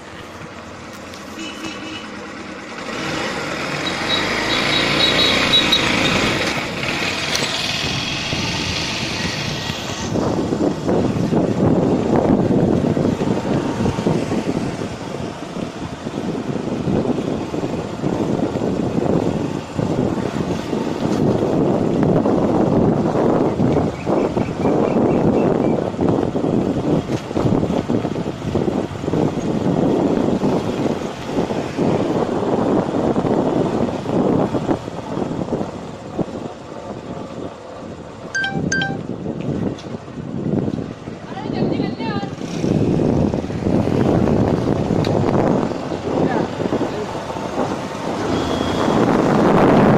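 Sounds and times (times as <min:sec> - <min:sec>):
motorcycle riding noise: 0:00.0 - 0:49.9
wind buffeting microphone: 0:06.2 - 0:38.2, 0:39.0 - 0:49.9
short high beeps: 0:38.4 - 0:39.0, 0:48.3 - 0:49.0.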